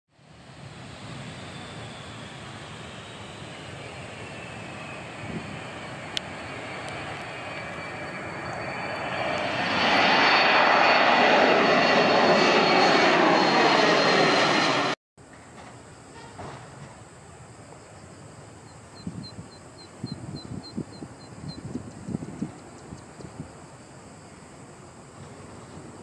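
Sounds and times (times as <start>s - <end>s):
jet engine roar: 0.1s - 26.0s
high jet whine: 0.2s - 15.0s.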